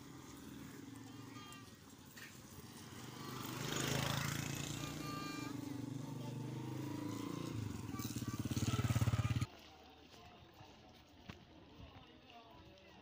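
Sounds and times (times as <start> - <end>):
motorcycle engine running: 0.0 - 9.5.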